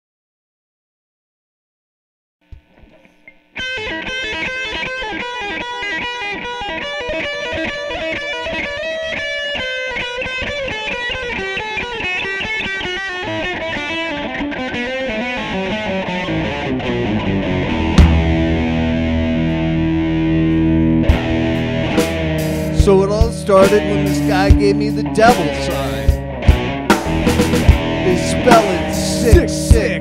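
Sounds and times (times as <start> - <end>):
low bass line: 17.0 - 30.0
acoustic guitar picked notes: 17.5 - 30.0.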